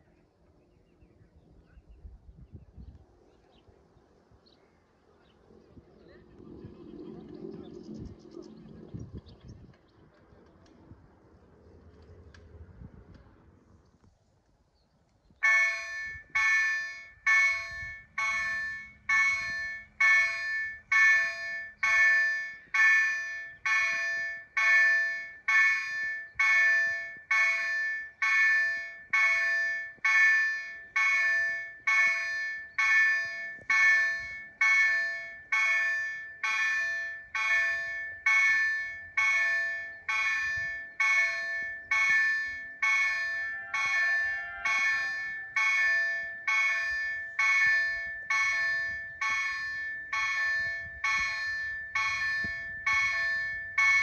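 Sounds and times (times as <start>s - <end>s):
level crossing warning bell: 15.4s - 54.0s.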